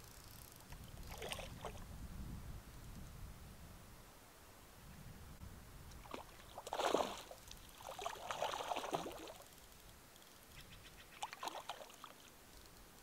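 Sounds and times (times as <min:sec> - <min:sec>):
fish splashing at water surface: 0:06.0 - 0:09.4.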